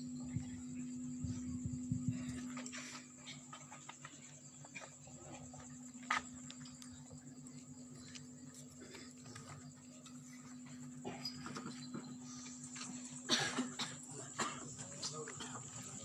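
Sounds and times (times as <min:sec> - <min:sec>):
faint high whine: 0:00.0 - 0:16.0
steady low hum: 0:00.0 - 0:16.0.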